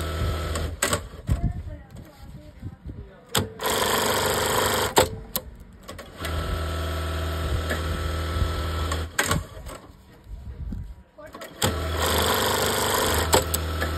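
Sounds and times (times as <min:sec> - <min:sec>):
sewing machine stitching: 0:03.6 - 0:05.1, 0:11.4 - 0:13.9.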